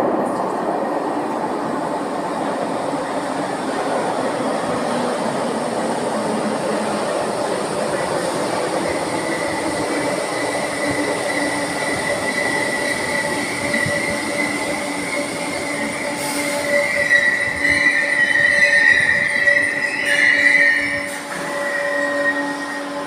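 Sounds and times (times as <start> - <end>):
train running gear hum: 0.0 - 23.0
high-pitched brake squeal: 9.0 - 23.0.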